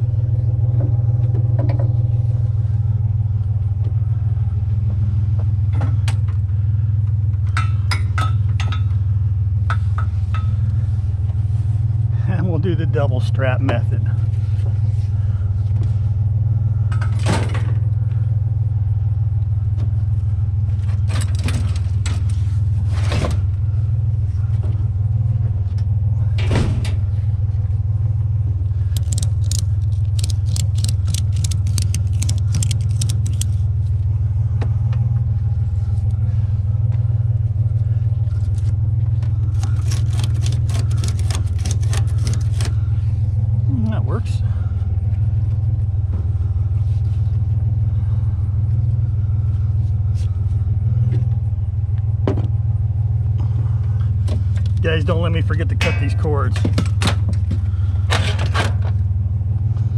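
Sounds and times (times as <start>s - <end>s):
truck engine idling: 0.0s - 59.9s
ratchet strap clicking: 28.9s - 33.6s, 39.5s - 42.8s.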